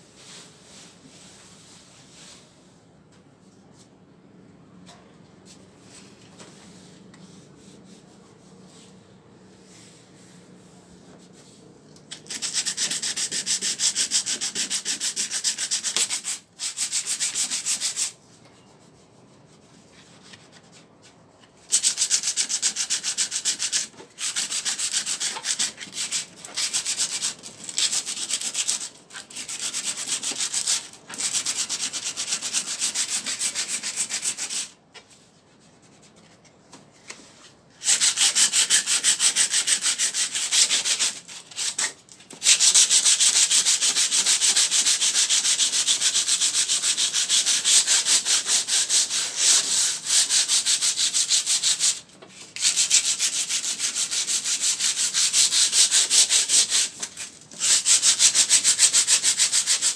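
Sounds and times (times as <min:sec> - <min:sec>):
sandpaper rubbing on metal: 0:12.1 - 0:18.2, 0:21.7 - 0:34.7, 0:37.8 - 0:59.9.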